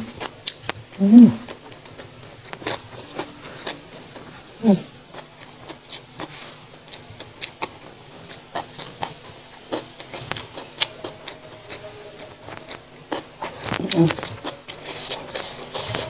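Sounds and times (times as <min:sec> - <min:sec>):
crisp chewing: 0:00.0 - 0:16.0
falling hum from eater: 0:00.0 - 0:16.0.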